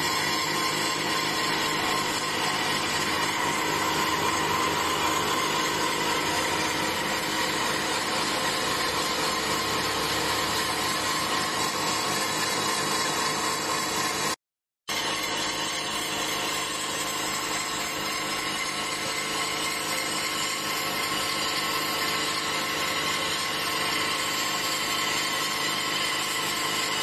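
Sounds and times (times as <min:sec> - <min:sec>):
cutting machine whining: 0:00.0 - 0:27.0.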